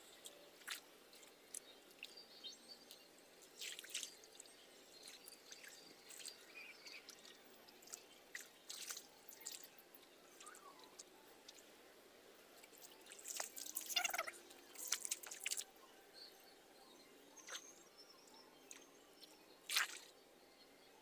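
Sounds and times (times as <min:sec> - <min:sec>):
water splashing and dripping: 0:00.6 - 0:02.2, 0:02.9 - 0:11.6, 0:12.6 - 0:15.7, 0:19.7 - 0:20.1.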